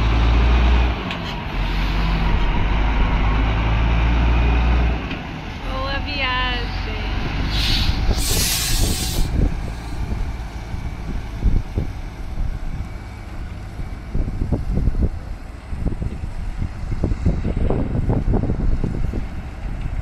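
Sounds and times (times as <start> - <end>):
diesel engine rumble: 0.0 - 20.0
air brakes hissing: 7.4 - 10.0.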